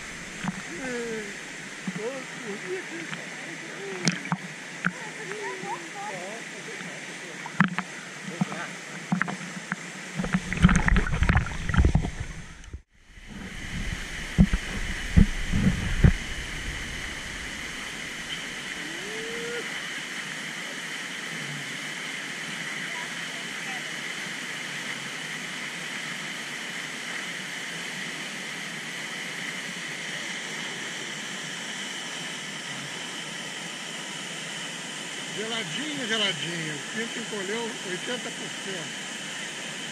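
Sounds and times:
water sloshing and splashing: 0.0 - 6.0, 6.7 - 18.8
waterfall hiss: 0.0 - 39.9.

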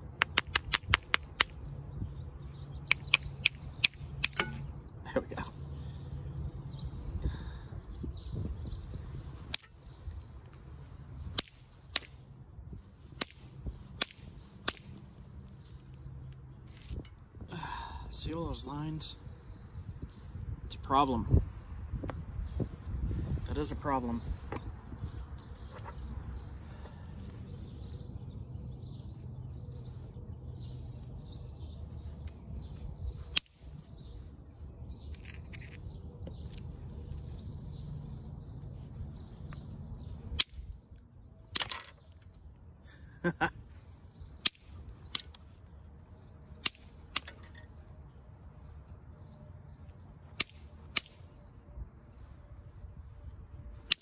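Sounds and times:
low wind rumble: 0.0 - 42.8, 43.4 - 54.0
stone knapping clicks: 0.2 - 1.6, 2.8 - 4.8, 44.4 - 45.4, 46.0 - 47.6.

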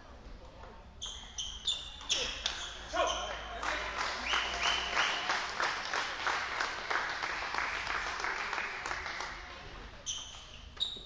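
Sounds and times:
small group applauding: 3.4 - 9.7.

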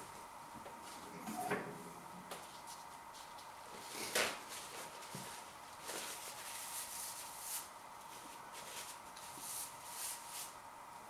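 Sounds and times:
paper towel rustling: 2.3 - 10.6.

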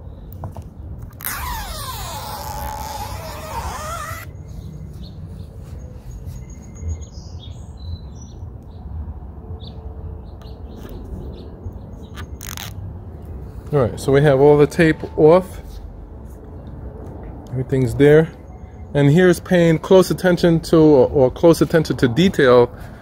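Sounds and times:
backing liner ripping off tape: 1.0 - 4.3, 12.2 - 12.8.

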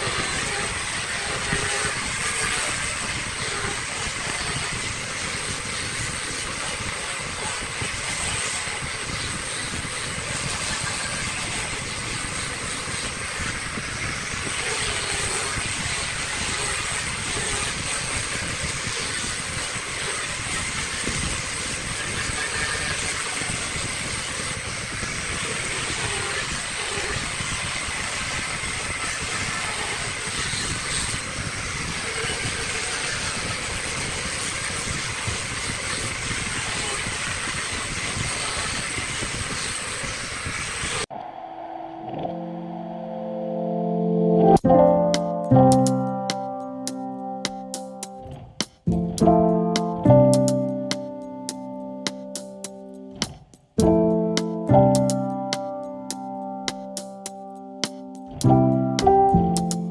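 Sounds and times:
sanding hiss on wood: 0.0 - 41.0
angle grinder high whine: 41.1 - 44.5.

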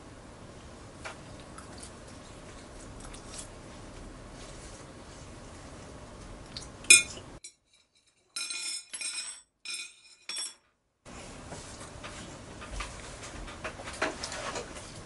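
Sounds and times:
metal chopsticks clinking on plates: 6.9 - 7.6.

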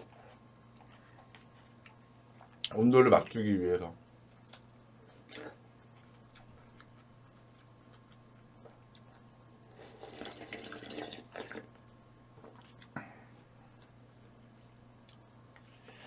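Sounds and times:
steady low hum: 0.0 - 16.0
wet eating sounds: 4.4 - 13.0.

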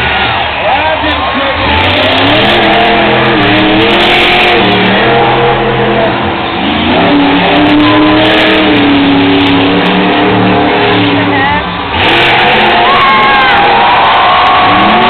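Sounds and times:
monster truck engine revving: 0.0 - 15.0.

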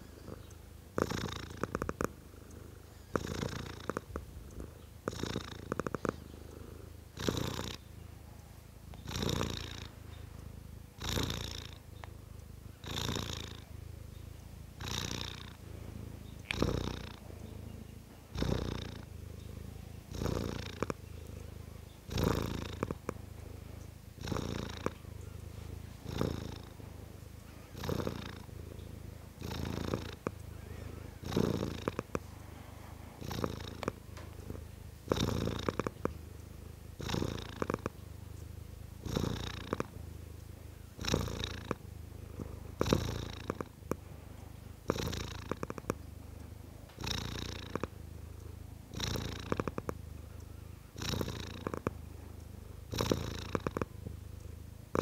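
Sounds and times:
cat purring: 0.0 - 55.0.

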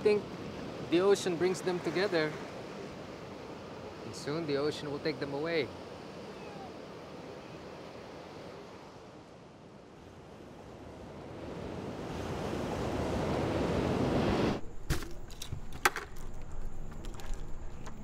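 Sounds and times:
ocean surf breaking: 0.0 - 18.0.

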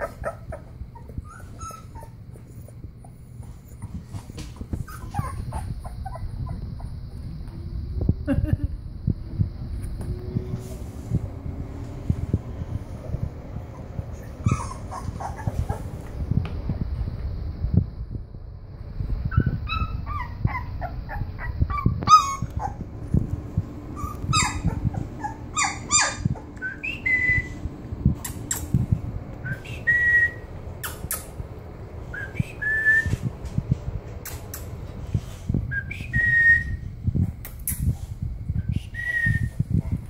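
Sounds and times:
puppies whimpering and squeaking: 0.0 - 7.2, 13.6 - 16.1, 19.2 - 22.9, 23.9 - 28.8.

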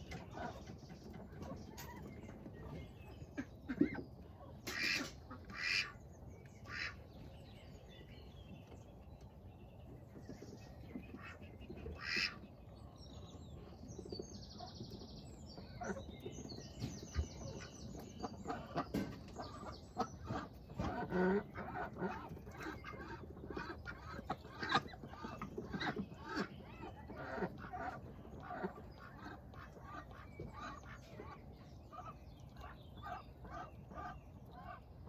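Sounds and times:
ducks quacking: 3.3 - 6.0, 6.6 - 7.0, 11.1 - 12.4, 18.2 - 34.9.

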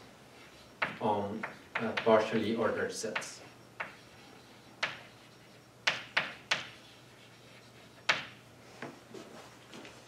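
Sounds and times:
chalk tapping on blackboard: 0.8 - 2.3, 3.1 - 9.0.

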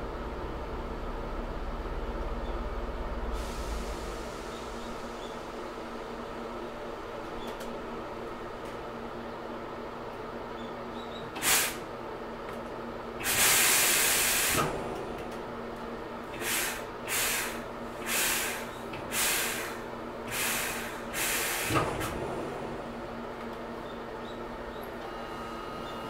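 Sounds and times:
electric train humming: 0.0 - 10.2, 19.4 - 26.0
compressed air hissing: 11.4 - 11.8, 13.2 - 14.6, 16.4 - 21.9.

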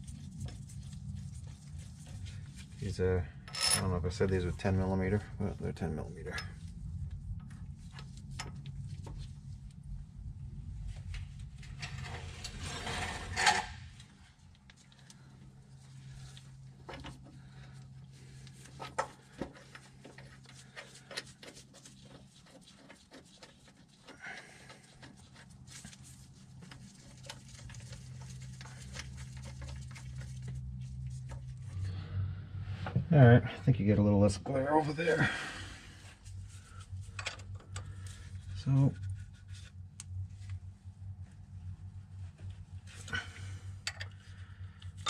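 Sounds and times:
steady low hum: 0.0 - 45.0
gloved hands rustling: 14.4 - 31.9.

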